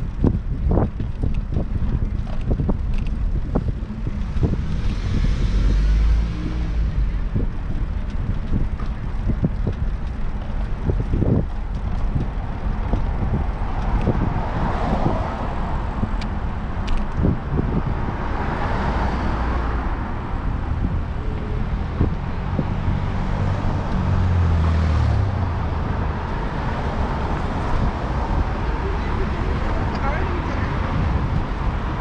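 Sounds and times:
heavy vehicle engine rumble: 0.0 - 32.0
street traffic noise: 0.0 - 32.0.

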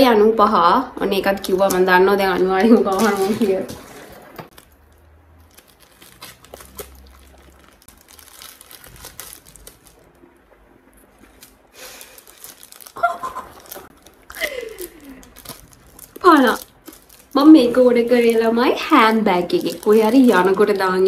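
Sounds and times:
plastic packaging crinkling: 1.4 - 21.0
person laughing briefly: 13.0 - 15.2.

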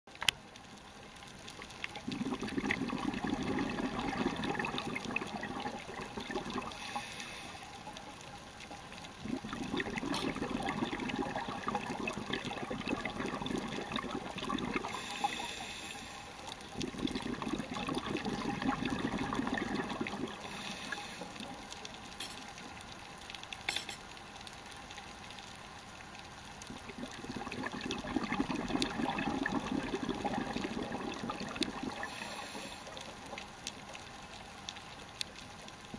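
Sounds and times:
exhaled bubbles rumbling: 1.5 - 7.1, 8.6 - 15.9, 16.5 - 21.8, 26.5 - 33.5
regulator inhale hiss: 6.6 - 8.1, 14.8 - 16.6, 20.4 - 21.5, 32.0 - 33.1.

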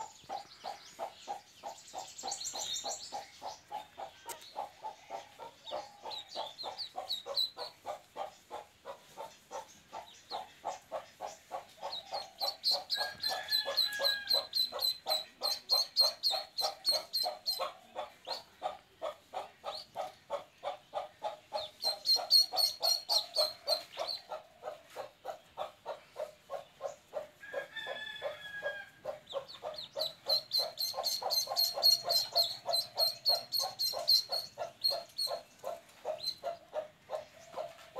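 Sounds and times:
duckling peeping: 0.1 - 27.3, 29.0 - 37.9.

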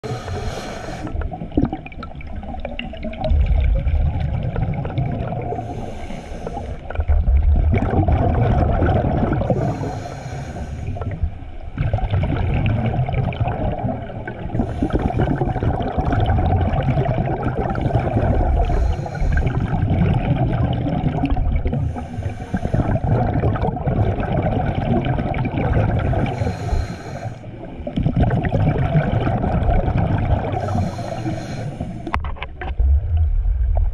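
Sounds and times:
regulator hiss on inhale: 0.0 - 1.2, 5.6 - 7.0, 9.5 - 11.2, 14.6 - 15.2, 18.6 - 19.8, 21.7 - 23.1, 26.2 - 27.7, 30.5 - 32.2
rumble of exhaust bubbles: 1.1 - 5.9, 6.8 - 9.9, 10.9 - 26.6, 27.7 - 31.3, 32.0 - 33.9.

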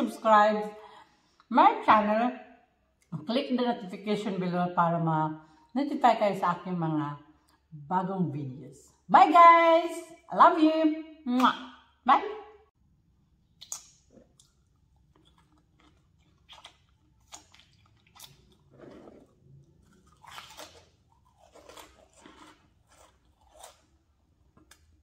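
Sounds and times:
crunchy chips being bitten: 13.6 - 25.0.

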